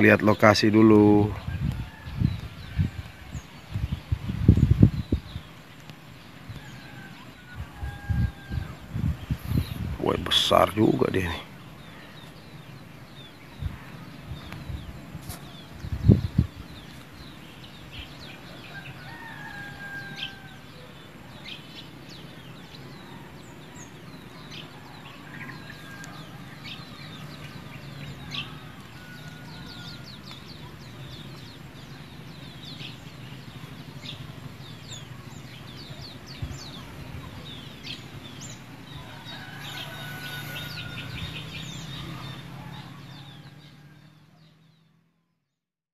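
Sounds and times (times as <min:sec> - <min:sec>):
birds chirping: 0:00.0 - 0:45.2
rooster crowing in the distance: 0:01.3 - 0:03.7, 0:06.4 - 0:09.7, 0:18.2 - 0:31.2, 0:34.8 - 0:44.6.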